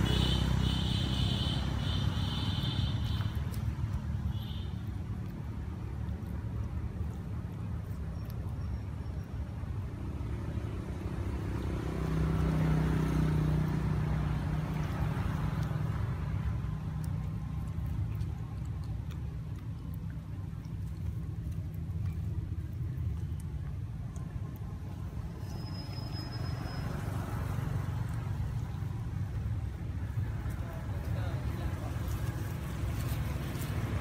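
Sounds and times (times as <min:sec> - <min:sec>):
vehicle engine passing by: 0:00.0 - 0:08.4, 0:09.6 - 0:34.0
steady low rumble: 0:14.0 - 0:25.8.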